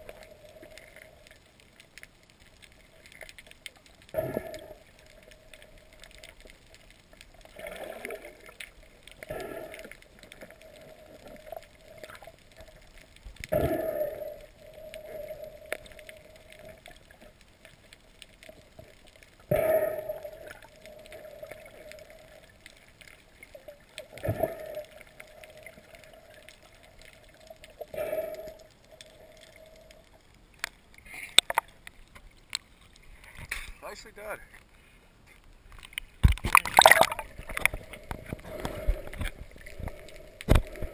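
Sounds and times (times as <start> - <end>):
faint steady hum: 0.0 - 40.9
water rushing against camera: 35.6 - 40.9.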